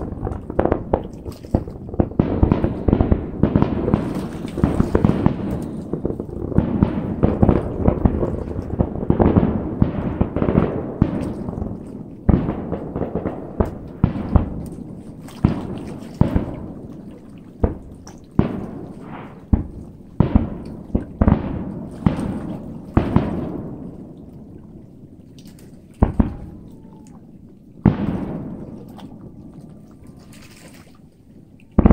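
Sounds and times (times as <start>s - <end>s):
firework shells bursting: 0.0s - 24.1s, 25.9s - 27.0s, 27.8s - 29.6s.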